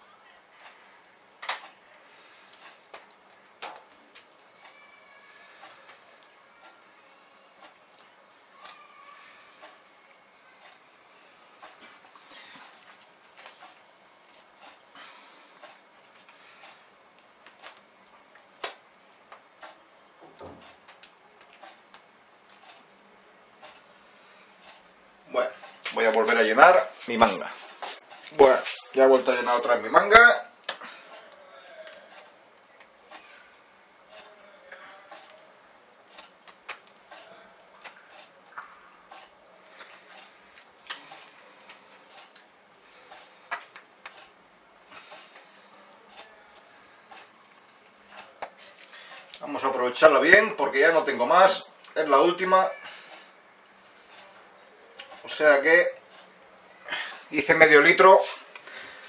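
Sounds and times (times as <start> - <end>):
piping bag clicks and crinkles: 30.6 - 44.4.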